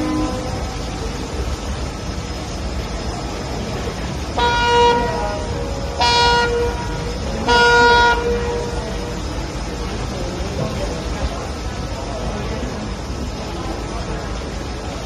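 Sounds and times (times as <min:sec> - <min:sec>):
ship horn blasts: 0:00.0 - 0:01.2, 0:04.3 - 0:09.6
ferry engine rumble: 0:00.0 - 0:15.0.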